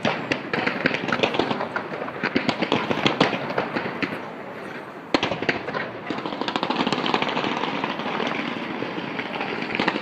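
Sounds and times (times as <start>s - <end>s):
fireworks bang: 0.0s - 10.0s
fireworks crackling and popping: 0.0s - 10.0s.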